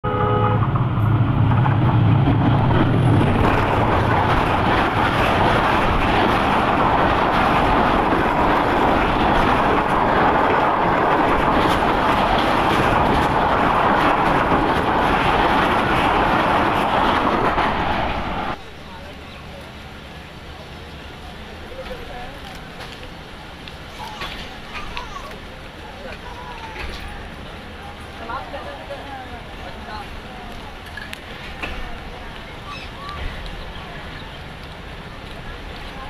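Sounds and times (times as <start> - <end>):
diesel locomotive engine: 0.0 - 36.0
train wheels on rails: 0.5 - 36.0.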